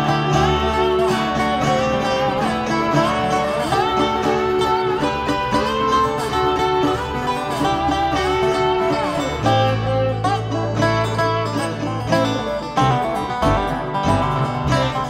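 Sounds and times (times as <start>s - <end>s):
picked acoustic guitar: 0.0s - 15.0s
slide dobro: 0.0s - 15.0s.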